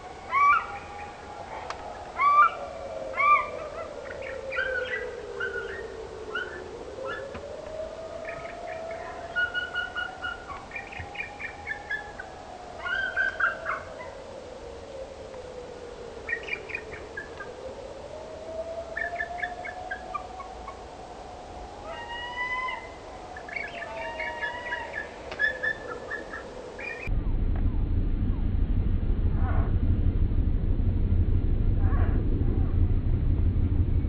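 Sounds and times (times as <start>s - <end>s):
steady rising and falling tone: 27.0s - 34.0s.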